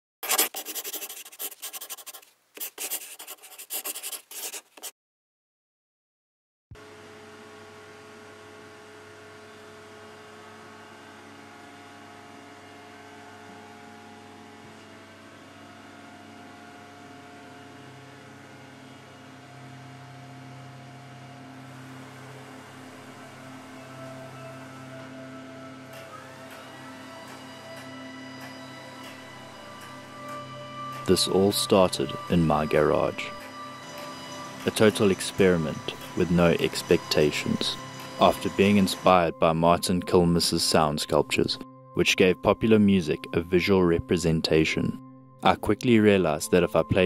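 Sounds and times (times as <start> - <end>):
pen scratching on paper: 0.2 - 4.9
hum with held tones: 6.8 - 42.1.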